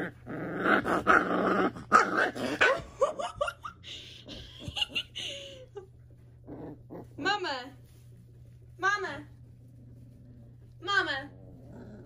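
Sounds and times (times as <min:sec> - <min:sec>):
puppy growling: 0:00.0 - 0:03.0, 0:06.1 - 0:07.2, 0:09.3 - 0:12.0.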